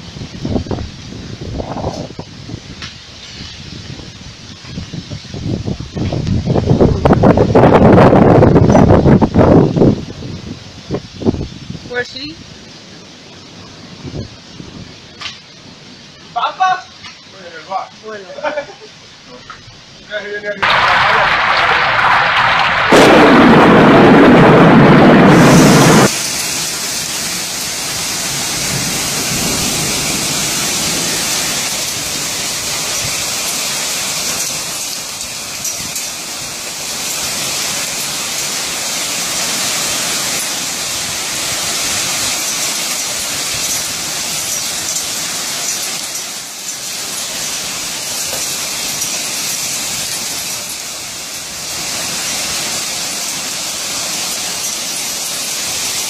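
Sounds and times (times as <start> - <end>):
heavy rain hissing: 0.0 - 56.0
loud thunder: 20.6 - 33.4.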